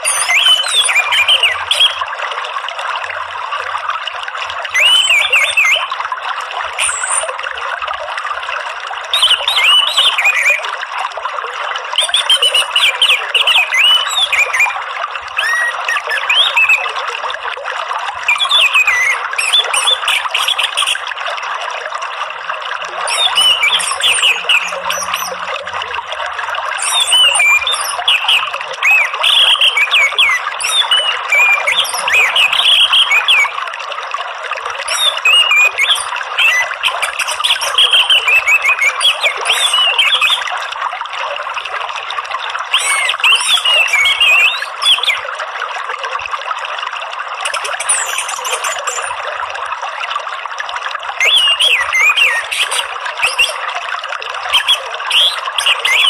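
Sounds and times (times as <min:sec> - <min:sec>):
bird singing whistled phrases: 0:00.0 - 0:02.0, 0:04.7 - 0:05.9, 0:06.8 - 0:07.3, 0:09.1 - 0:10.7, 0:12.0 - 0:14.8, 0:15.4 - 0:16.9, 0:18.3 - 0:21.0, 0:23.1 - 0:25.5, 0:26.8 - 0:33.6, 0:34.9 - 0:40.4, 0:42.7 - 0:45.2, 0:47.5 - 0:49.2, 0:51.2 - 0:53.6, 0:54.5 - 0:56.0
running water: 0:00.0 - 0:56.0.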